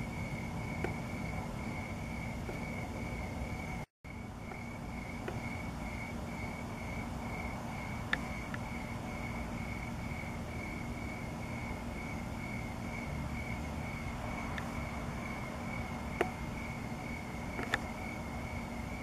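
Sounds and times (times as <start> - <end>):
crickets chirping: 0.0 - 19.0
low background rumble: 0.0 - 19.0.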